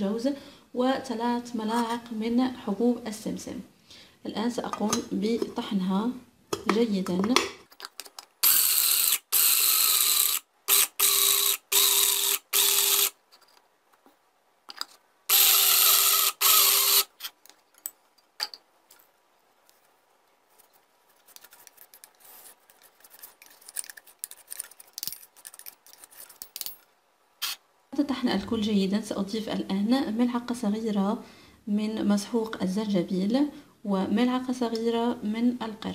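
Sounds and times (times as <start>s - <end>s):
electric grinder grinding nuts: 8.4s - 13.2s, 15.3s - 17.1s.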